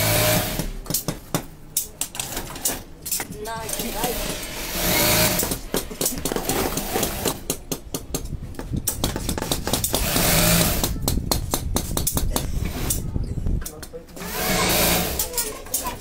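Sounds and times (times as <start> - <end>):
industrial sewing machine running: 0.0 - 0.7, 3.9 - 5.5, 10.0 - 10.8, 14.2 - 15.5
sharp clicks and knocks: 5.4 - 14.0.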